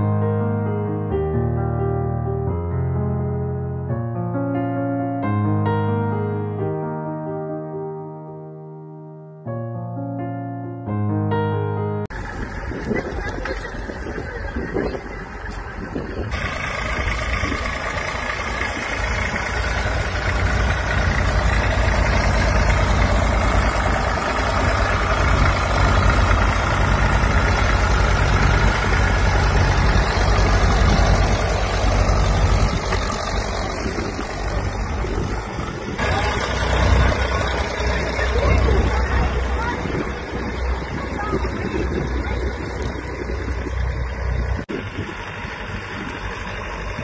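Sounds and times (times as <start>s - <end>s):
tractor engines rumbling: 11.4s - 47.0s.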